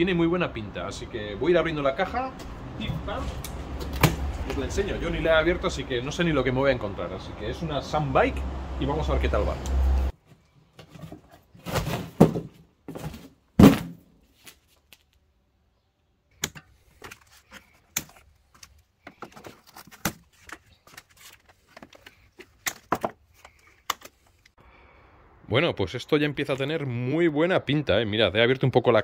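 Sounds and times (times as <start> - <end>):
foam packing rustling: 10.7 - 15.0, 16.8 - 24.5
cardboard flaps scraping and rustling: 10.8 - 15.0, 16.9 - 24.4
loud thump: 13.6 - 14.0.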